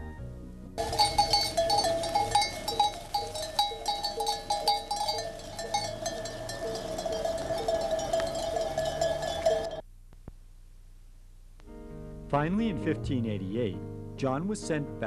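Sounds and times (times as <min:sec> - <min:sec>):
sheep bells clinking: 0:00.8 - 0:09.8.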